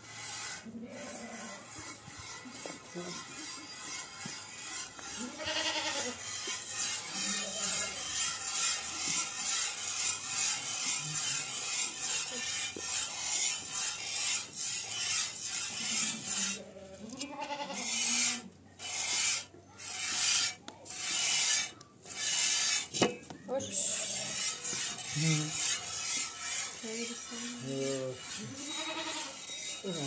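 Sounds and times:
goat bleating: 0.5 - 8.3, 15.6 - 18.5, 23.7 - 30.0.

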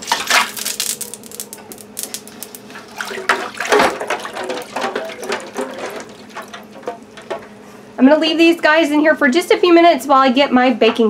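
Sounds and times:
water splashing in sink: 0.0 - 1.3, 2.7 - 7.6
ice cubes clattering: 0.0 - 7.6.

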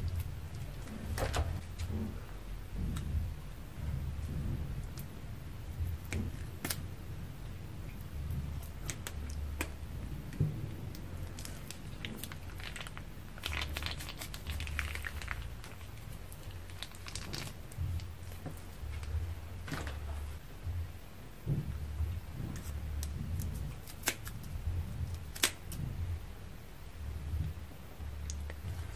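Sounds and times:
low hum: 0.0 - 28.9
slime crackling: 2.9 - 20.4, 22.6 - 25.9
plastic piping bag crinkling: 11.2 - 20.3.

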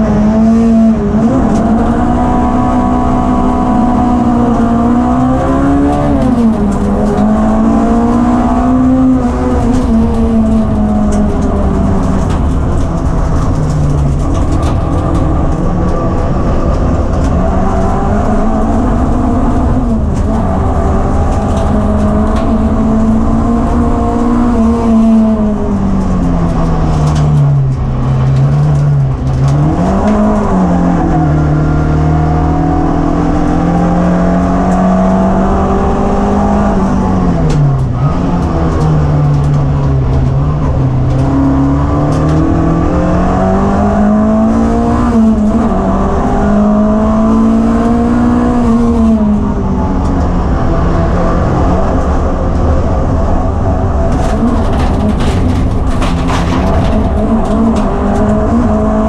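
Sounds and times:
car engine at racing revs: 0.0 - 59.0
heavy constant rumble: 0.0 - 59.0.

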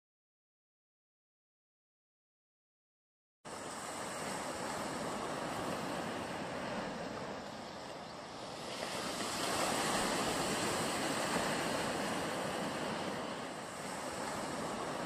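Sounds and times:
ocean surf: 3.5 - 15.0.

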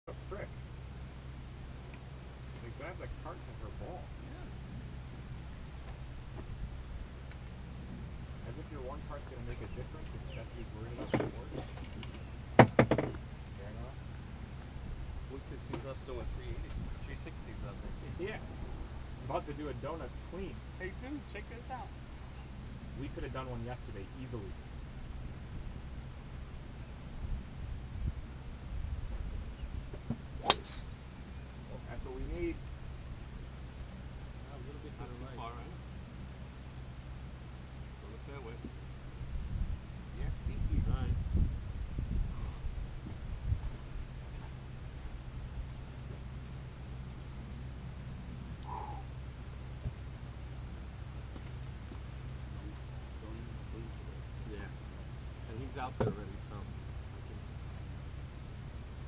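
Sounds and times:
insects droning: 0.0 - 59.0
golf club striking ball: 30.1 - 31.1.

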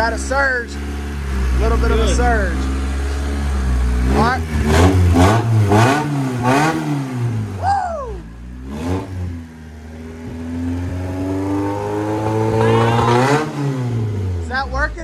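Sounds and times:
car engine surging idle: 0.0 - 15.0.

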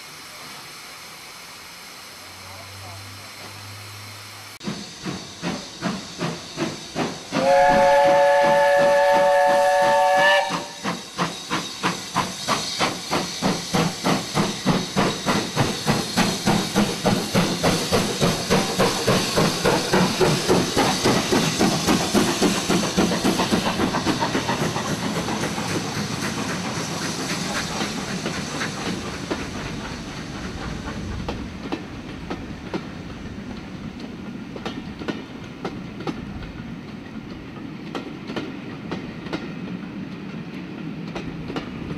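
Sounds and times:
steam locomotive exhaust beats: 0.0 - 41.9
train wheels clicking over rail joints: 4.6 - 41.9
steam whistle: 7.3 - 11.0.

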